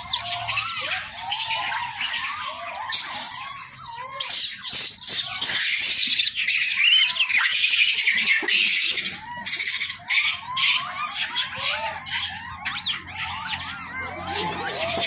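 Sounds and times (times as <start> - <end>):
monkey squeal: 0.0 - 15.0
monkeys calling: 0.0 - 15.0.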